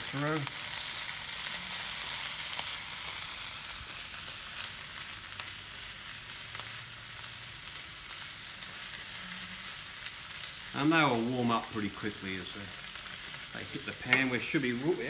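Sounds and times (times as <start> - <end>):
vegetables sizzling in a wok: 0.0 - 15.0
spatula scraping and tapping pan: 14.0 - 14.5.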